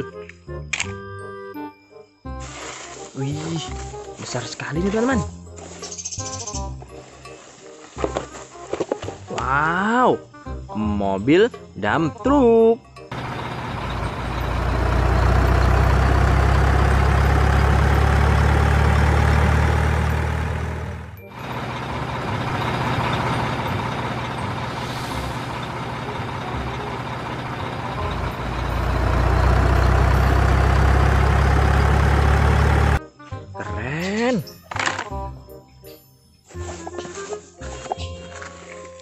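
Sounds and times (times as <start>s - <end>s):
diesel truck engine rumbling: 13.1s - 33.0s.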